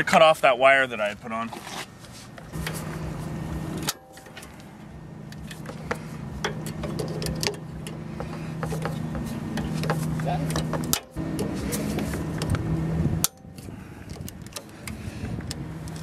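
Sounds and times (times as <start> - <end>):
low engine hum: 2.2 - 16.0
wire cutters clicking and snipping: 5.3 - 12.6, 13.2 - 16.0.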